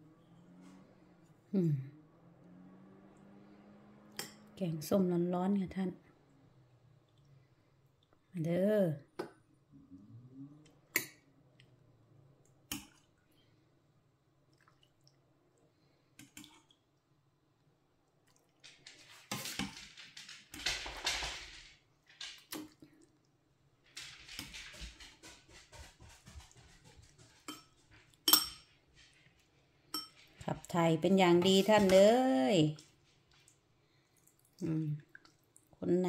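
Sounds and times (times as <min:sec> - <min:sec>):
liquid splashing and dripping: 0:14.4 - 0:15.3, 0:16.2 - 0:17.0, 0:33.2 - 0:35.8
metal ladle clinking pot: 0:28.3 - 0:28.6.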